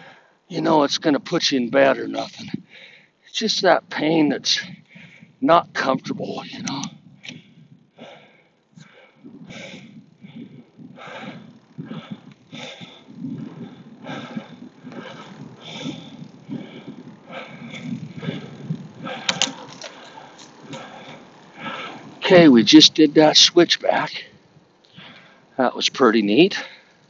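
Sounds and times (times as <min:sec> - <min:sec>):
cyclist breathing hard: 0:00.0 - 0:00.5, 0:02.1 - 0:03.3, 0:04.4 - 0:05.4, 0:06.2 - 0:22.6, 0:24.2 - 0:25.6, 0:26.6 - 0:27.0
wind and tyre rumble: 0:03.8 - 0:08.2, 0:08.9 - 0:23.2.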